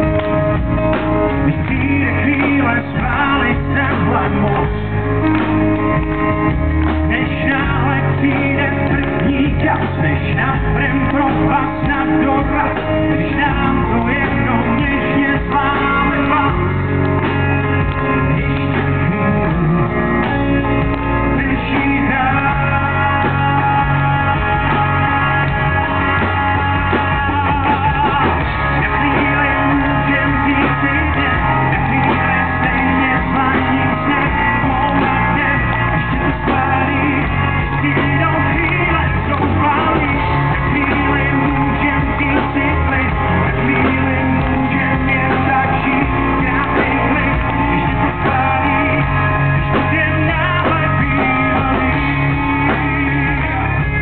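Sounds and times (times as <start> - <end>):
drums: 0.0 - 54.0
electric guitar: 0.0 - 54.0
man singing lead: 0.0 - 54.0.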